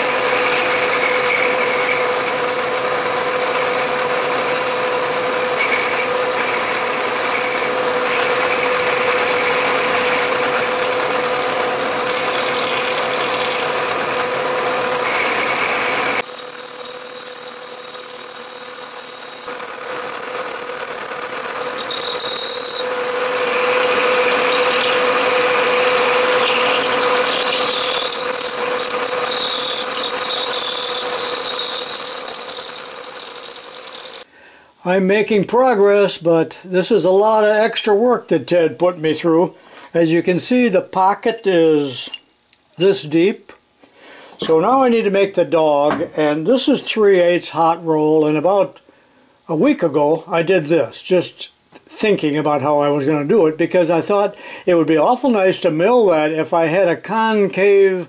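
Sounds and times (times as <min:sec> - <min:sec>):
milling machine whine: 0:00.0 - 0:34.3.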